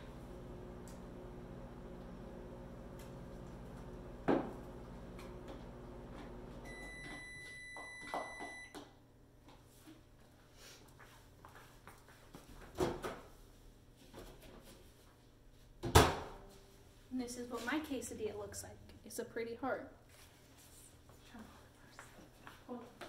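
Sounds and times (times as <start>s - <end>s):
microwave beeping: 0.0s - 8.8s
microwave oven humming: 0.0s - 8.8s.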